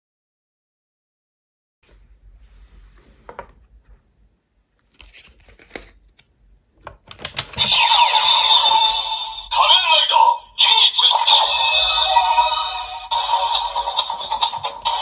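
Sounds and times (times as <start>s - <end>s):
toy electronic sound effect: 7.6s - 15.0s.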